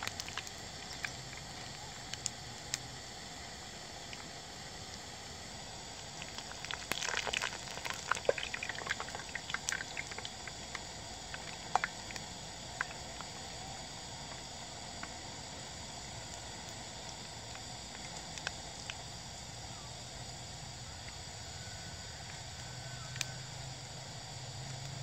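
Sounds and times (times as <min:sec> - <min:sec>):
oil crackling and clicking: 0:00.0 - 0:15.4, 0:16.1 - 0:19.1
food deep-frying in hot oil: 0:00.0 - 0:25.0.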